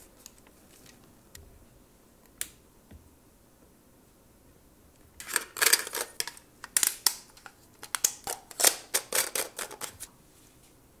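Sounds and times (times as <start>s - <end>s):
plastic crinkling and rustling: 5.2s - 10.1s.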